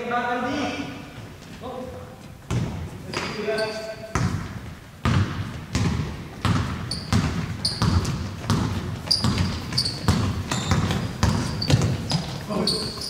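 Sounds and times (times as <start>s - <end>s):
ball bouncing on hard floor: 2.5s - 13.0s
short high squeaks: 9.1s - 10.7s, 11.4s - 13.0s.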